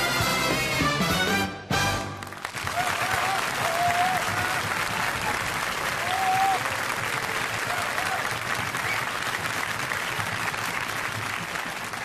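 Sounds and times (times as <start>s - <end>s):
audience applauding: 2.0s - 12.0s
call from crowd: 2.6s - 12.0s.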